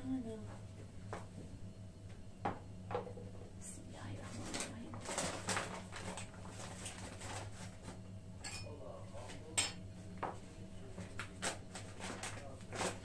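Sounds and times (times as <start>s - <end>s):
steady low hum: 0.0s - 13.0s
dishes and utensils clinking: 8.4s - 8.8s.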